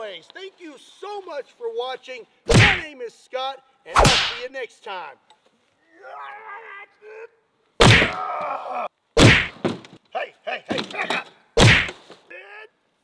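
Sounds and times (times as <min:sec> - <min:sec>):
heavy whacks with ringing: 0:02.5 - 0:02.8, 0:04.0 - 0:04.4, 0:07.8 - 0:08.2, 0:09.2 - 0:09.6, 0:11.6 - 0:11.9.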